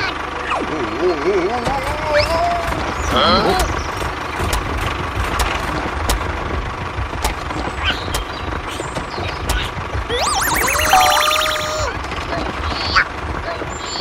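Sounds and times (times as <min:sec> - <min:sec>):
engine idling low rumble: 0:00.0 - 0:14.0
rising warbling tone: 0:10.1 - 0:12.0.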